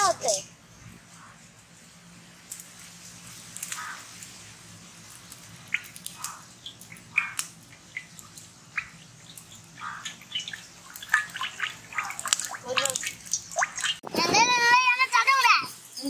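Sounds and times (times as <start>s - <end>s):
sharp clicks and crackles: 2.4s - 4.4s, 5.0s - 14.0s.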